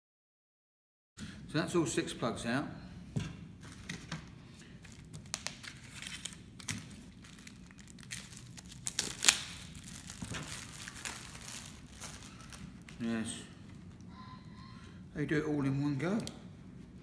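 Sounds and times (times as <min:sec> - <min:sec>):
plastic wrapping crinkling and tearing: 0:04.8 - 0:13.1.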